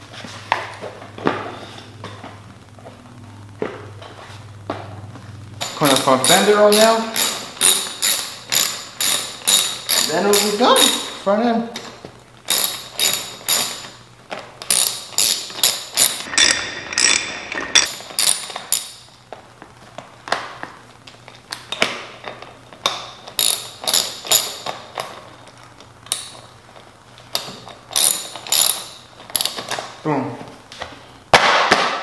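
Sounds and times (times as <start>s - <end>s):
hand tool metallic clicks: 5.6s - 11.1s.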